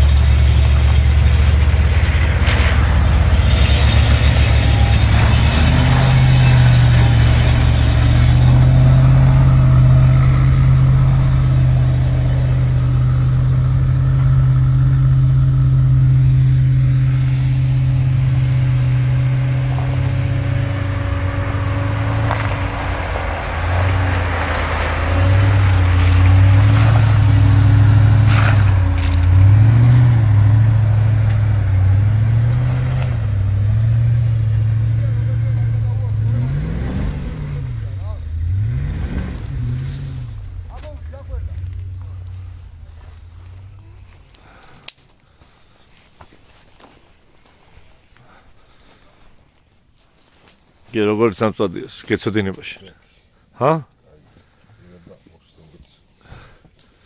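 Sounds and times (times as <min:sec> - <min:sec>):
car engine revving: 0:00.0 - 0:44.6.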